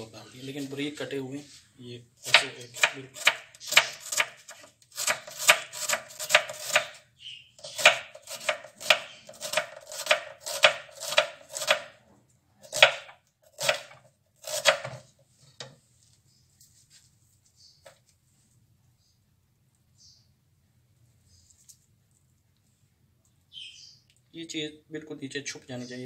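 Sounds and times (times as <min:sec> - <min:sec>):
knife chopping onion on wooden board: 0:02.2 - 0:07.0, 0:07.6 - 0:12.0, 0:12.6 - 0:15.1.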